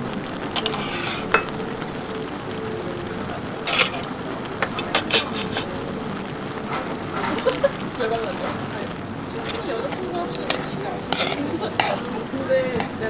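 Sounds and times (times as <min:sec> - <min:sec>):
food simmering and sizzling in pan: 0:00.0 - 0:13.0
metal utensils clinking against pan: 0:00.6 - 0:01.6, 0:03.6 - 0:05.7, 0:06.7 - 0:08.7, 0:09.4 - 0:12.2.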